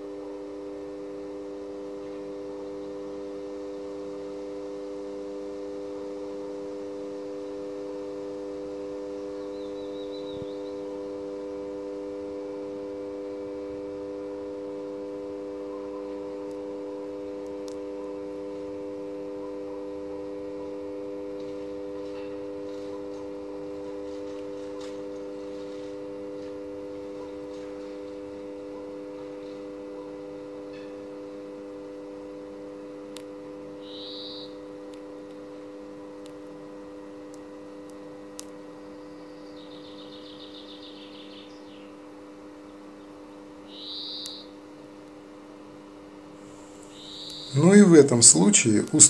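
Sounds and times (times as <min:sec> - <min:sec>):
transformer humming: 0:00.0 - 0:49.0.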